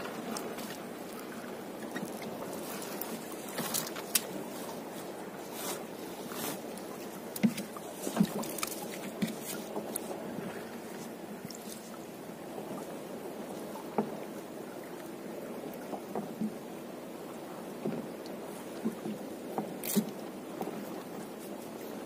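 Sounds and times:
water dripping and splashing: 0:00.0 - 0:04.7, 0:05.6 - 0:10.1.

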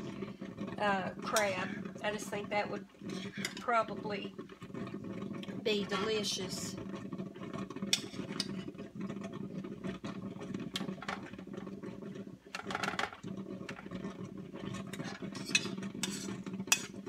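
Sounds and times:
mixture scooping clicks and scrapes: 0:00.0 - 0:11.8, 0:12.6 - 0:17.0
scrape on metal pan: 0:07.9 - 0:08.7, 0:15.0 - 0:17.0.

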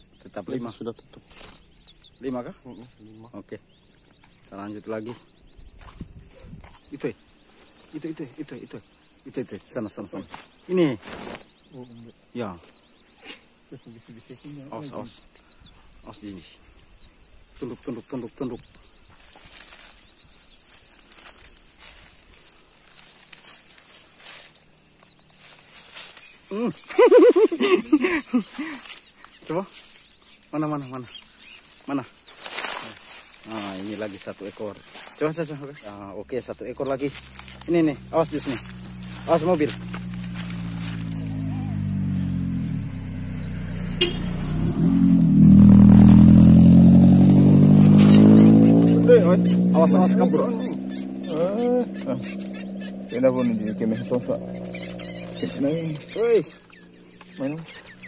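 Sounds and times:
bush leaves rustling: 0:00.0 - 0:02.4, 0:06.7 - 0:15.2, 0:15.8 - 0:58.0
car driving past: 0:37.1 - 0:58.0
high-pitched chirps: 0:47.7 - 0:58.0.

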